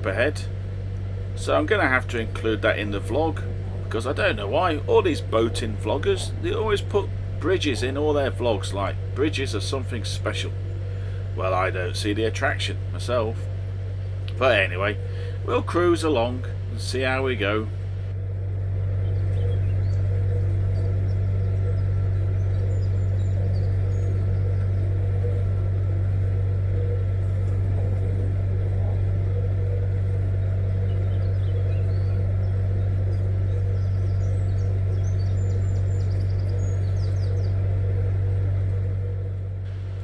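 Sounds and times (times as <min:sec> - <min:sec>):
boat diesel engine droning: 0:00.0 - 0:40.0
faint bird chirps: 0:18.8 - 0:39.0.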